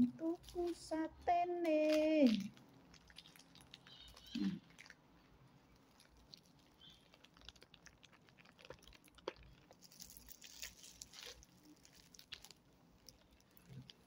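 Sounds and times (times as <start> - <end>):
faint chewing: 0.0 - 14.0
plastic bag crinkling: 0.0 - 14.0
mouth clicks: 3.8 - 4.9.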